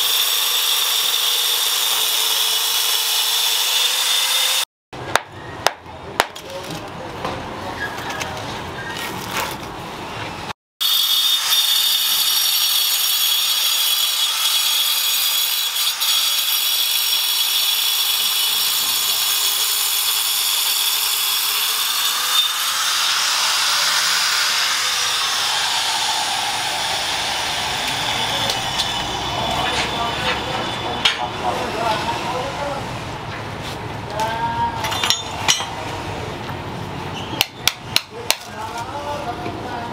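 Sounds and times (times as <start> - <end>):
angle grinder cutting stone: 0.0 - 4.7, 10.8 - 32.8.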